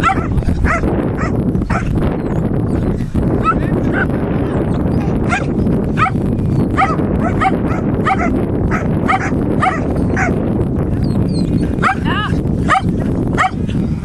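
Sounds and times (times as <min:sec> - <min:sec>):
dog barking: 0:00.0 - 0:02.0, 0:03.4 - 0:04.0, 0:05.2 - 0:10.4, 0:11.8 - 0:12.1, 0:12.7 - 0:13.6
steady low rumble: 0:00.0 - 0:14.0.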